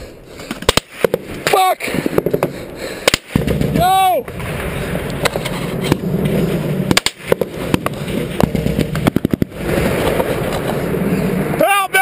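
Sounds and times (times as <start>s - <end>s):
steady rushing background noise: 0.0s - 12.0s
gunshots: 0.6s - 6.0s, 6.8s - 10.4s.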